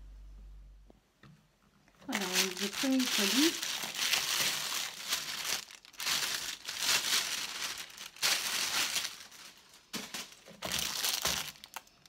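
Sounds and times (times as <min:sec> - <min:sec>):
plastic bag crinkling: 0:01.9 - 0:12.0.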